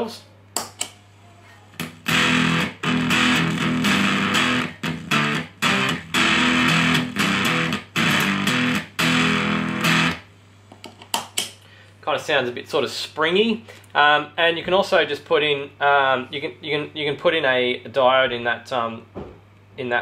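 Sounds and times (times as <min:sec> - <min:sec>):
mains hum: 0:00.0 - 0:20.0
fuzzed electric guitar chords: 0:01.8 - 0:10.3.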